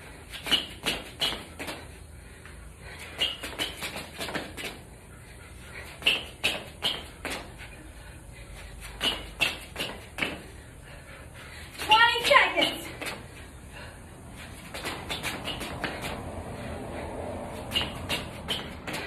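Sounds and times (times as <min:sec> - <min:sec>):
sneakers tapping on concrete: 0:00.3 - 0:02.0, 0:02.9 - 0:05.0, 0:05.8 - 0:07.7, 0:08.8 - 0:10.6, 0:14.4 - 0:16.2, 0:17.6 - 0:19.0.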